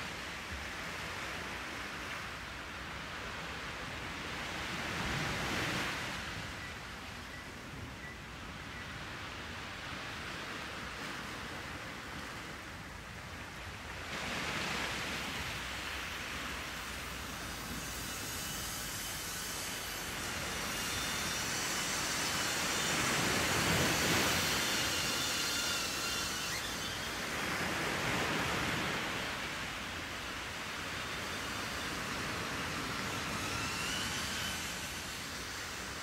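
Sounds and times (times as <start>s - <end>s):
drone propellers whirring: 16.1s - 36.0s.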